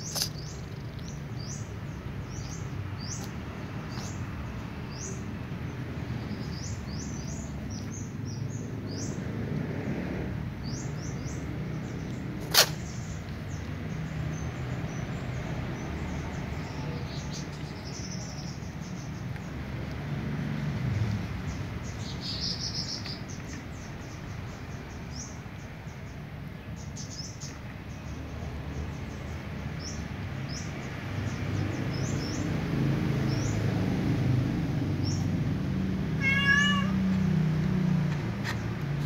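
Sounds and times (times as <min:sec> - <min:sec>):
small high chirps and clicks: 0:00.0 - 0:01.2
kitten mewing: 0:36.1 - 0:37.3.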